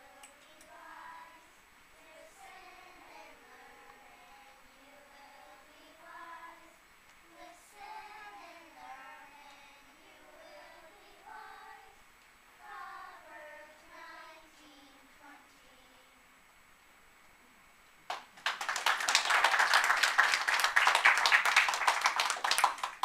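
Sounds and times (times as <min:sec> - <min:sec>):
faint children's choir singing: 0:00.0 - 0:16.5.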